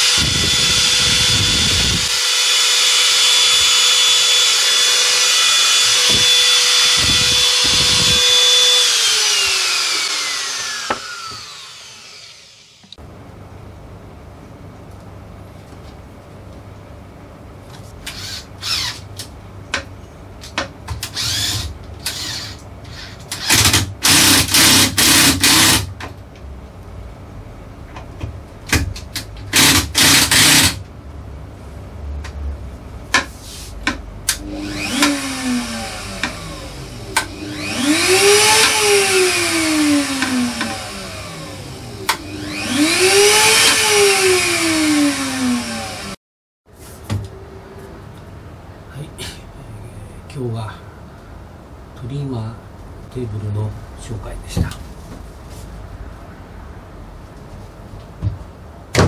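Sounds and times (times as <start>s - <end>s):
router motor whine: 0.0s - 13.0s, 18.1s - 19.0s, 21.2s - 25.8s, 34.3s - 46.2s.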